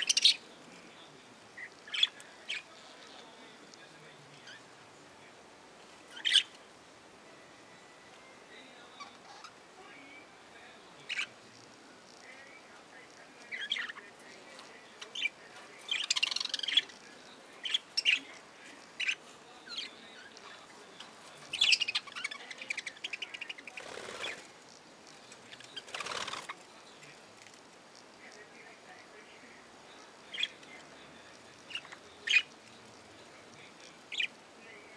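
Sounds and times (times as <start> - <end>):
budgerigars chirping: 0.0 - 0.4, 6.1 - 6.5, 15.0 - 16.9, 21.5 - 24.4, 31.6 - 32.5, 34.1 - 34.3
wing flapping: 23.8 - 24.5, 25.8 - 26.6.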